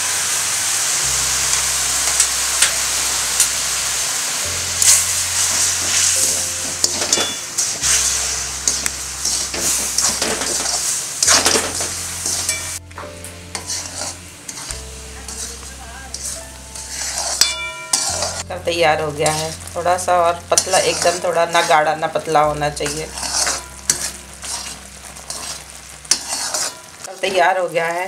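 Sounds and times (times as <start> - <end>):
syrup sizzling in a pan: 0.0 - 28.0
spoon scraping a pan: 4.8 - 12.8, 13.5 - 18.5, 19.2 - 27.5.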